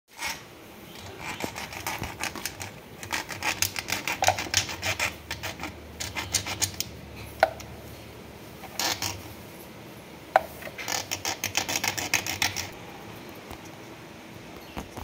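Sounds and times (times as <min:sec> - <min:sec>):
hand file rasping on metal: 0:01.1 - 0:06.8.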